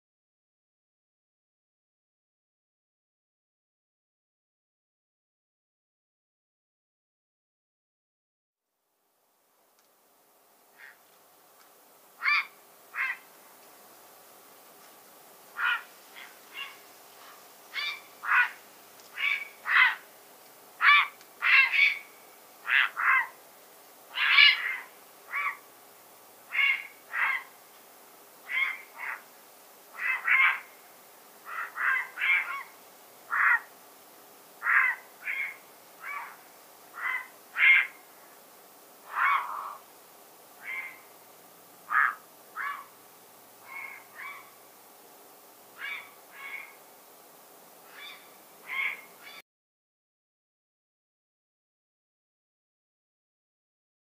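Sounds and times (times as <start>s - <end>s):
heron croaking calls: 10.8s - 11.0s, 12.2s - 13.3s, 15.6s - 16.8s, 17.7s - 20.1s, 20.8s - 23.4s, 24.1s - 25.6s, 26.5s - 27.5s, 28.4s - 29.3s, 29.9s - 30.8s, 31.4s - 33.7s, 34.6s - 38.0s, 39.0s - 39.8s, 40.6s - 41.1s, 41.9s - 43.0s, 43.6s - 44.6s, 45.8s - 46.8s, 47.9s - 49.4s.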